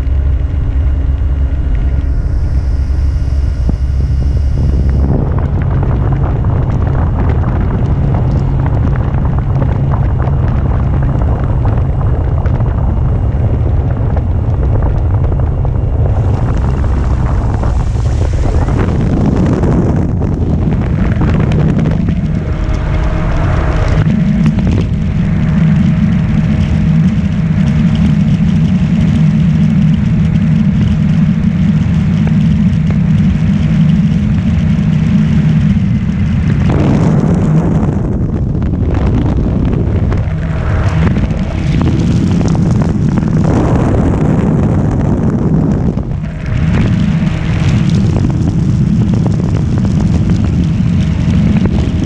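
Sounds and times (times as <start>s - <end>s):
model airplane electric motor hum: 0.0s - 13.6s
wind rumble on microphone: 0.0s - 52.0s.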